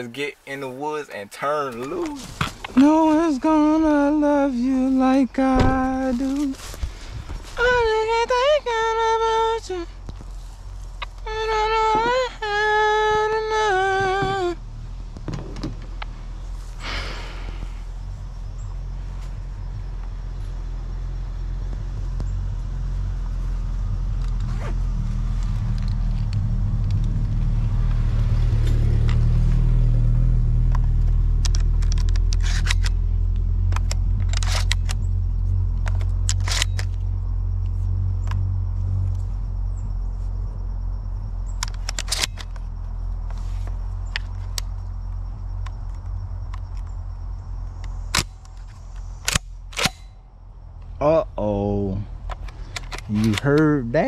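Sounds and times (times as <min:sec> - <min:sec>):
vehicle engine rumbling: 0:00.0 - 0:54.0
sharp clicks and knocks: 0:30.7 - 0:35.1, 0:41.5 - 0:44.8.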